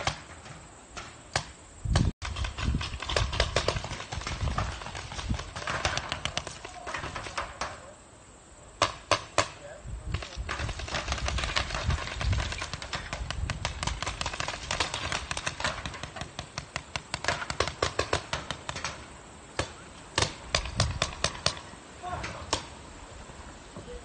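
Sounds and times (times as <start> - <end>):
paintball markers firing: 1.3 - 7.8, 8.8 - 19.0.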